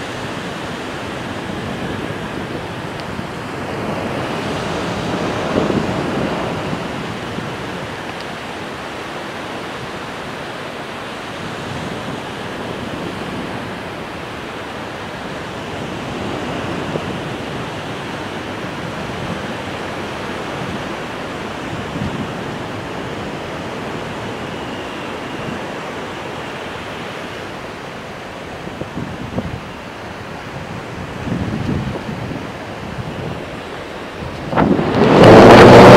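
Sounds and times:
wind on microphone: 0:00.0 - 0:35.9
surf breaking: 0:31.1 - 0:35.9.

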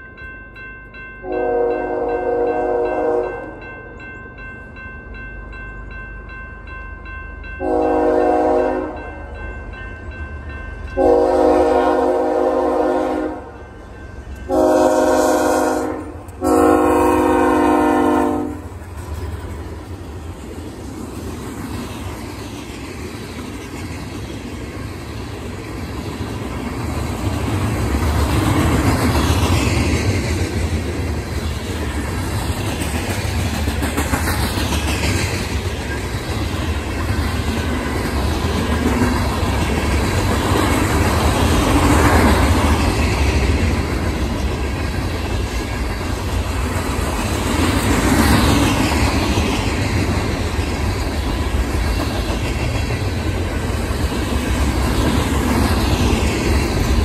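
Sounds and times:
freight train rumbling past: 0:00.0 - 0:57.0
locomotive horn blasts: 0:01.2 - 0:03.5, 0:07.6 - 0:09.1, 0:11.0 - 0:13.6, 0:14.5 - 0:18.7.

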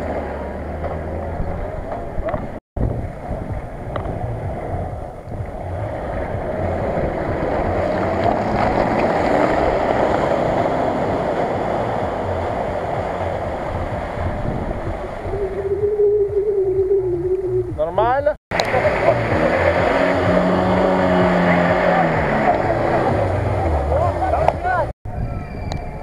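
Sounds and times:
suv engine running: 0:00.0 - 0:24.9
wind noise on microphone: 0:01.2 - 0:23.7, 0:24.4 - 0:26.0
steady tone: 0:02.8 - 0:24.6
mud splashing: 0:05.4 - 0:15.3, 0:18.5 - 0:24.7.

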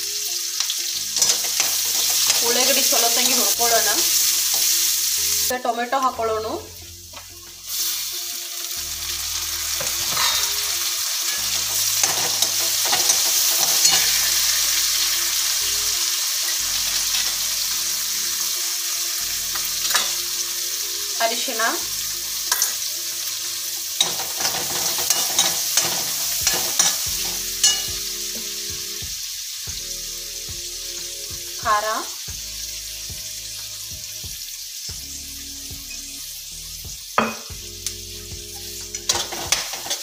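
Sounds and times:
vegetables sizzling in hot oil: 0:00.0 - 0:40.0
steel spoon scraping a pan: 0:00.2 - 0:05.5, 0:07.1 - 0:21.7, 0:22.4 - 0:28.7, 0:37.2 - 0:40.0.

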